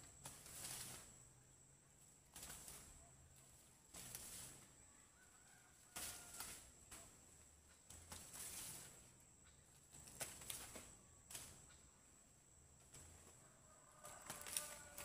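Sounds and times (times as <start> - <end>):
maize leaves rustling: 0.0 - 15.0.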